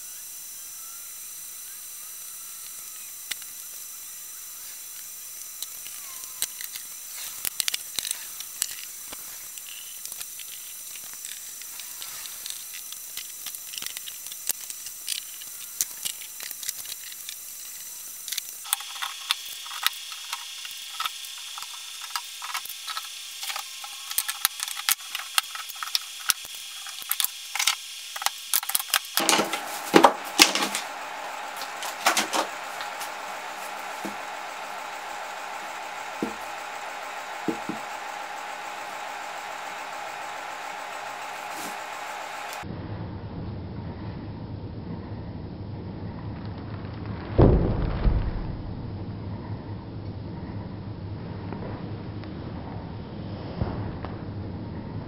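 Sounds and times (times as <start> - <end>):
clamps clicking and knocking: 18.3 - 31.0
steady hiss: 29.1 - 42.6.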